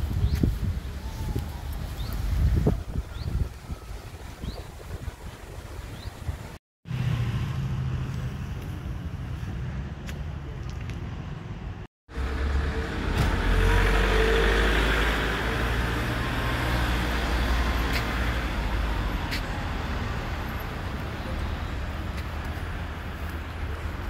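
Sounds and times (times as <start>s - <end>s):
low traffic rumble: 0.0s - 24.0s
car passing: 12.1s - 21.4s.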